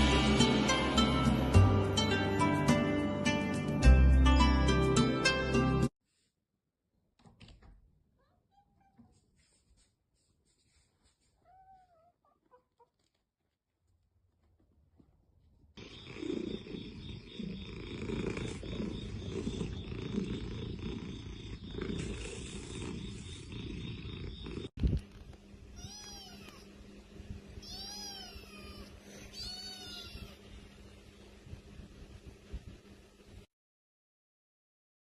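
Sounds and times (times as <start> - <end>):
kitten mewing: 11.4 - 12.9, 25.8 - 26.7, 27.6 - 30.4
cat purring: 15.4 - 24.7.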